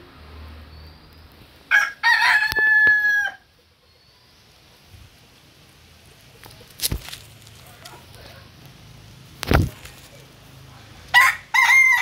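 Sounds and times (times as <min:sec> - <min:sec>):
rooster crowing: 0:01.7 - 0:03.5, 0:11.1 - 0:12.0.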